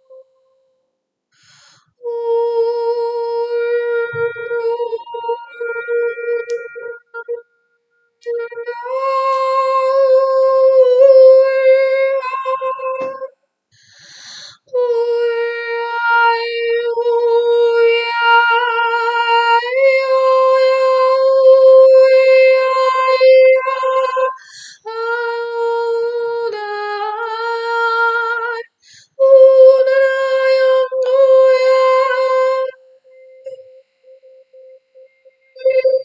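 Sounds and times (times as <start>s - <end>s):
woman toning long held notes: 1.5s - 7.6s, 8.2s - 13.3s, 29.2s - 36.0s.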